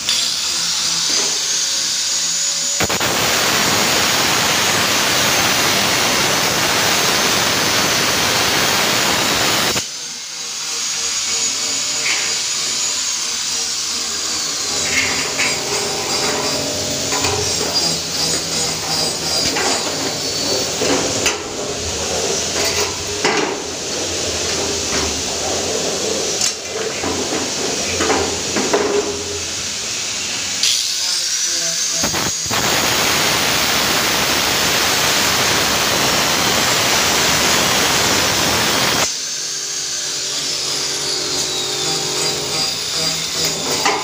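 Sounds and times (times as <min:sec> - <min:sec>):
angle grinder cutting metal: 0:00.0 - 0:44.0
sheet metal clattering: 0:14.8 - 0:29.5.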